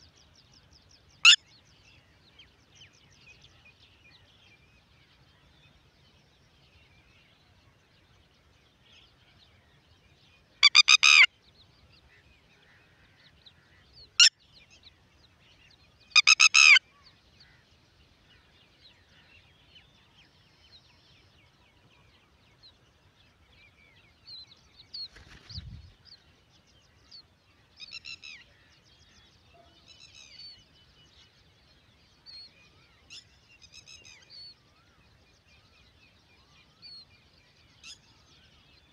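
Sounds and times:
faint background chirping: 0:00.0 - 0:38.9
lapwing harsh calls: 0:10.6 - 0:11.3, 0:16.2 - 0:16.8.

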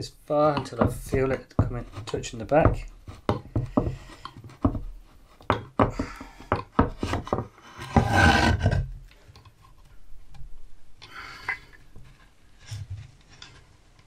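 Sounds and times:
board scraping across bench: 0:06.9 - 0:09.0.

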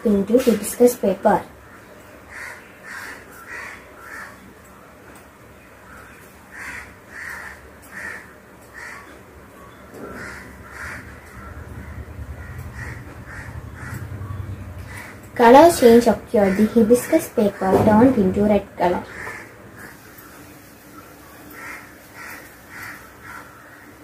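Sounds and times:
birds calling: 0:00.0 - 0:24.0
low rumble: 0:10.0 - 0:16.5.

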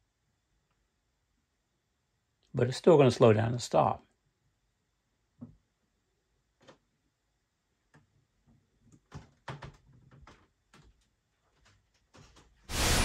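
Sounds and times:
loud rushing noise: 0:12.7 - 0:13.0.

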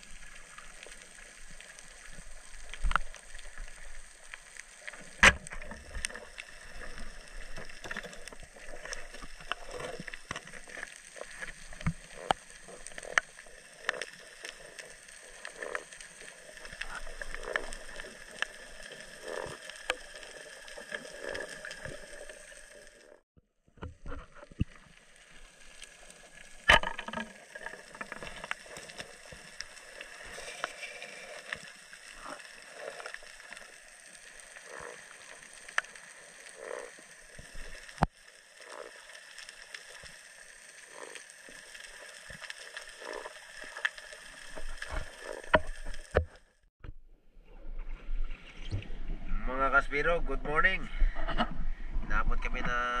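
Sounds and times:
clicks and crackles: 0:00.0 - 0:23.2, 0:23.8 - 0:46.6
underwater hiss: 0:27.3 - 0:46.0.

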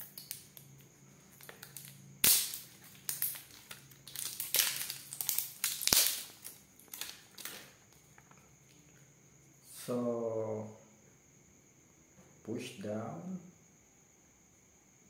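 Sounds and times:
plastic snapping: 0:00.0 - 0:08.4
plastic shrink-wrap crinkling: 0:01.3 - 0:08.4.

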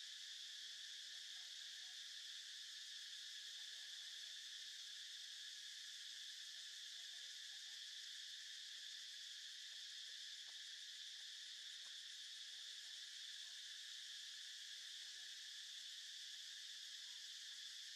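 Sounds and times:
insect chorus drone: 0:00.0 - 0:17.9.

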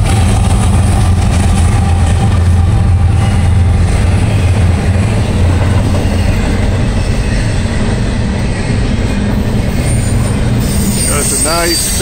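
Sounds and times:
freight train wheels on rails: 0:00.0 - 0:12.0.

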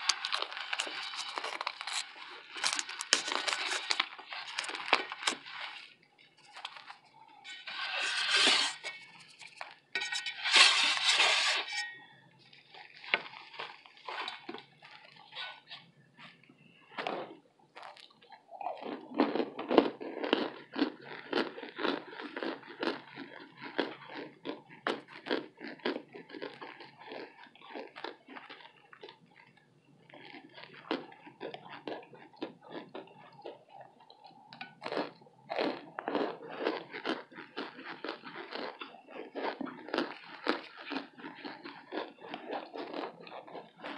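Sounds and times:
cornstarch brick crunching: 0:00.0 - 0:09.8, 0:17.8 - 0:33.6, 0:34.8 - 0:43.9.

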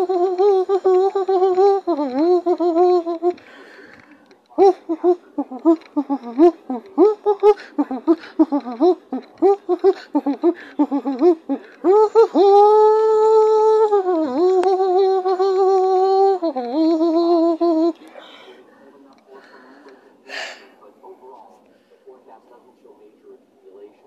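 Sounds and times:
person humming a long note: 0:00.0 - 0:03.4, 0:04.6 - 0:17.9.

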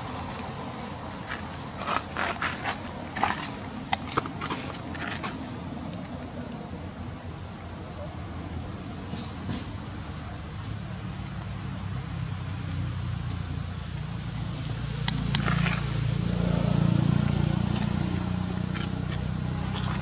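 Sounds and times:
passing vehicle rumble: 0:10.9 - 0:20.0.

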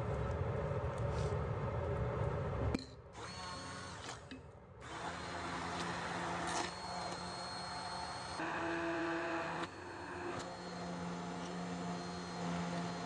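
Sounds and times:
hand blender motor whine: 0:03.2 - 0:04.2, 0:04.8 - 0:13.0.

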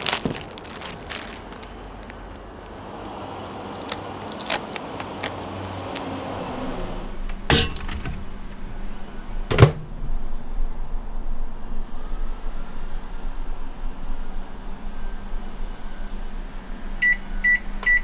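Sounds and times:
plastic packaging crinkling: 0:00.0 - 0:06.7.

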